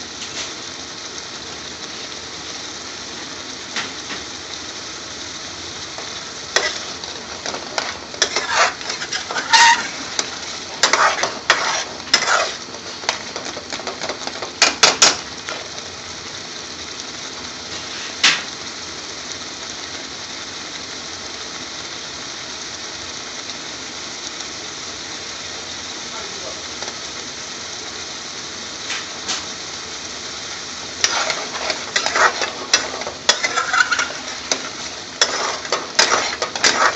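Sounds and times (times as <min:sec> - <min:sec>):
curry simmering hiss: 0:00.0 - 0:36.9
metal spoon scraping pan: 0:06.0 - 0:15.3, 0:31.0 - 0:36.9.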